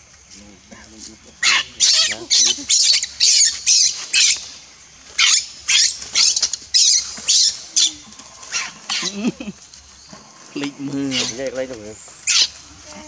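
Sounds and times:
baby monkey squealing: 1.4 - 4.4, 5.2 - 9.2, 11.1 - 11.4, 12.2 - 12.6.

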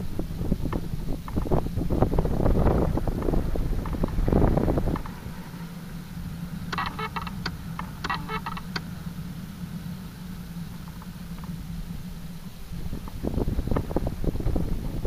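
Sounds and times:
low hum: 0.0 - 15.0
short buzzes: 5.6 - 10.0
sharp clicks: 6.7 - 8.9.

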